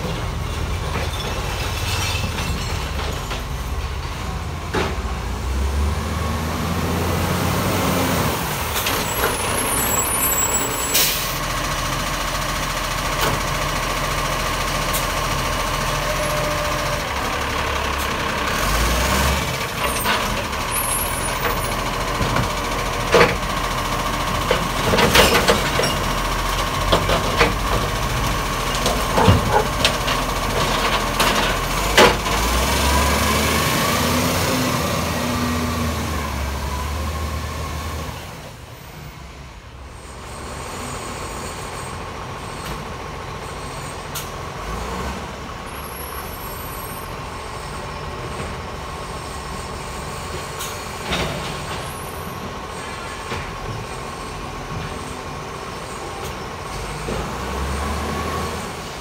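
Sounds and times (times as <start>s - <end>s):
clanks and knocks from bins: 0.0s - 5.2s, 22.2s - 23.5s, 24.3s - 28.0s, 28.6s - 32.6s
diesel engine with whine: 0.0s - 59.0s
air brake hiss: 10.8s - 11.4s.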